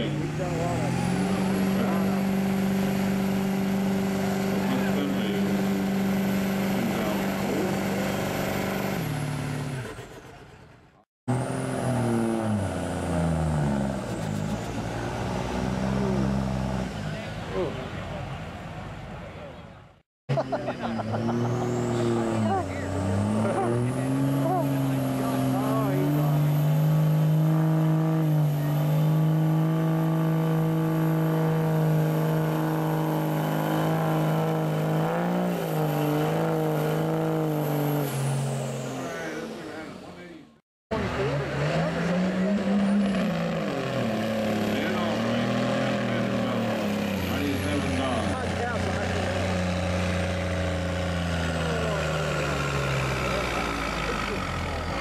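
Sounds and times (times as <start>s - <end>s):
diesel truck engine winding down: 0.0s - 55.0s
diesel truck revving: 0.0s - 55.0s.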